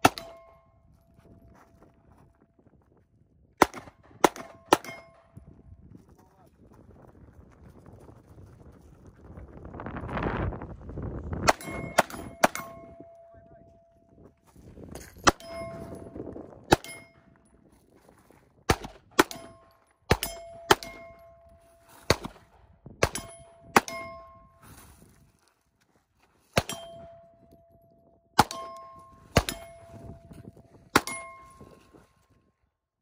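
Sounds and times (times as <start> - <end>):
pistol shots: 0.0 - 0.5, 3.6 - 5.2, 11.4 - 12.9, 18.7 - 21.4, 22.1 - 24.3, 28.4 - 29.8
ringing steel target plate: 0.0 - 1.0, 4.3 - 5.4, 11.4 - 13.9, 15.2 - 17.5, 19.2 - 22.4, 23.0 - 24.6, 26.6 - 32.1.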